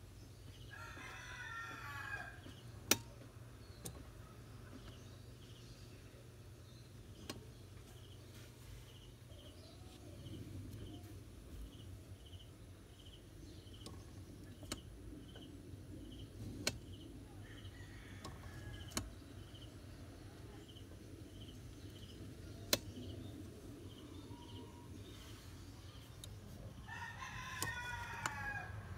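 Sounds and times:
low steady hum: 0:00.0 - 0:28.9
sharp clicks: 0:07.1 - 0:07.5, 0:13.7 - 0:15.4, 0:16.1 - 0:17.1, 0:18.2 - 0:19.6, 0:21.7 - 0:23.2.

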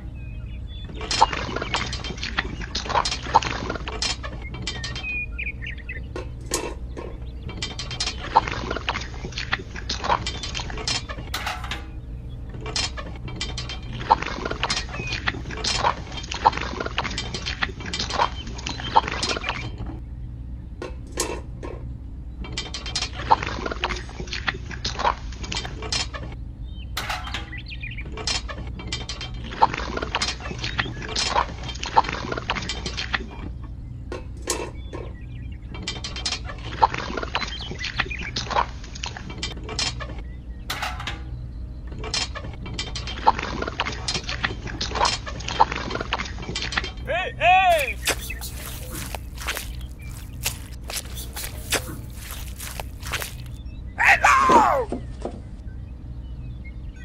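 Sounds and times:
steady low hum: 0:47.0 - 0:54.0
wet mortar clicking and scraping: 0:47.7 - 0:53.6.

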